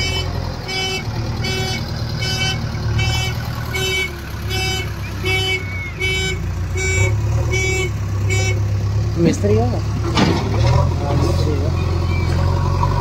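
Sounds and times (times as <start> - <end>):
reversing alarm beeping: 0.0 - 8.6
diesel engine under load: 0.0 - 13.0.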